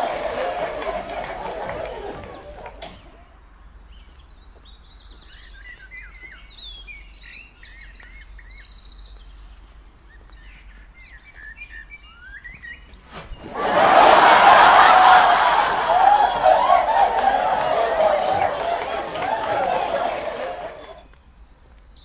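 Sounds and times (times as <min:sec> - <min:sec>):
songbirds chirping and trilling: 0:03.2 - 0:13.5.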